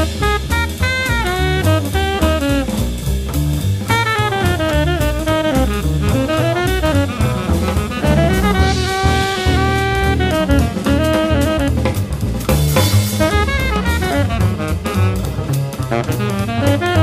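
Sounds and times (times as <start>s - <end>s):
drums and cymbals: 0.0s - 17.0s
tenor saxophone: 0.0s - 17.0s
walking double bass: 0.0s - 17.0s.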